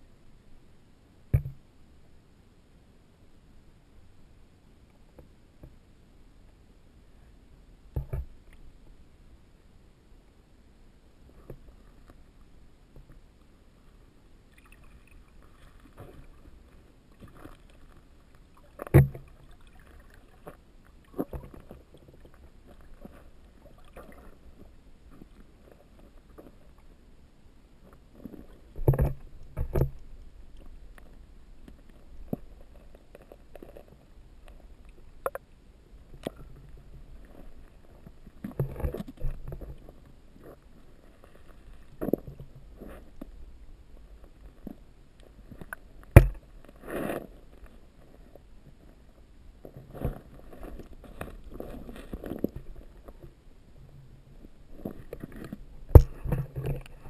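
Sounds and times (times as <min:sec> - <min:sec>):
underwater knocks and thumps: 0:01.3 - 0:01.6, 0:07.9 - 0:08.4, 0:18.8 - 0:19.4, 0:28.8 - 0:30.0, 0:46.0 - 0:46.5, 0:55.9 - 0:57.0.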